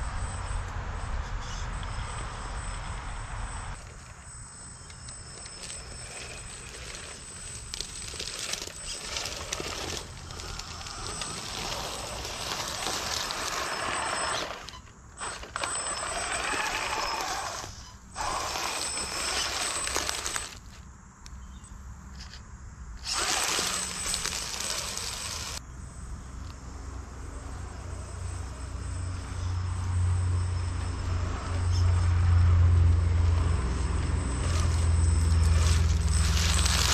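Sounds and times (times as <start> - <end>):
rc car motor whining: 1.4 - 20.7, 23.0 - 25.6, 27.2 - 36.9
tyres crashing through dry leaves: 5.8 - 20.6, 23.0 - 25.6, 34.4 - 36.9.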